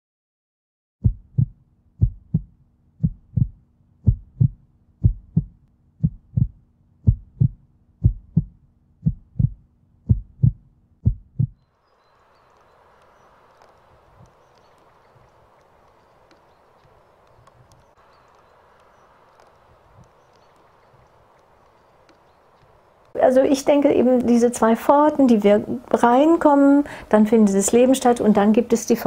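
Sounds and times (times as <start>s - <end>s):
heartbeat thumping: 1.0s - 11.6s
faint low hum: 1.0s - 29.0s
outdoor ambience hiss: 1.4s - 29.0s.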